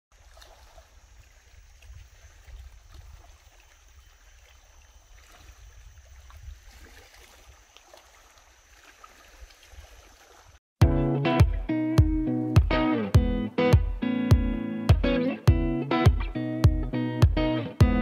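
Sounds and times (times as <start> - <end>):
water lapping on pebbly shore: 0.1 - 10.6
wind rumble on microphone: 0.6 - 4.0, 5.0 - 7.6.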